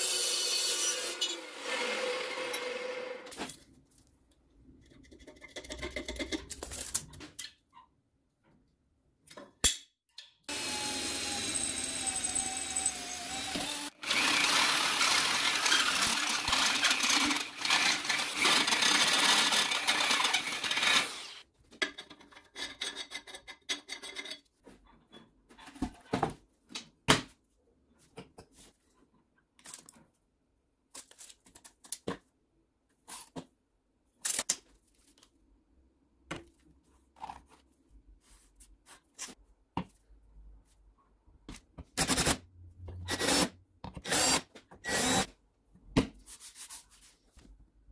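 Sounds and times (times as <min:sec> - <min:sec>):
power tool running: 0:10.5 - 0:21.4.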